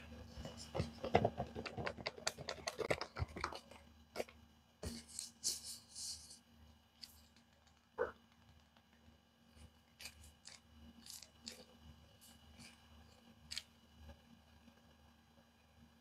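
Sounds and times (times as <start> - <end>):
paper crinkling and crackling: 0.4 - 5.5, 9.9 - 13.7.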